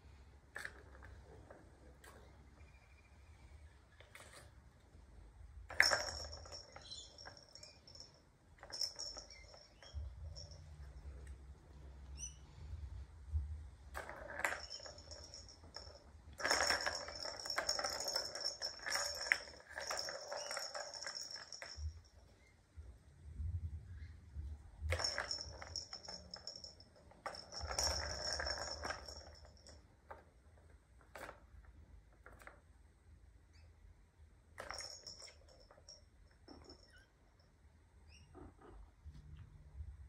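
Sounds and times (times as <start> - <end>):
plastic balls rattling in toy: 5.7 - 10.6, 13.9 - 22.0, 24.8 - 30.3.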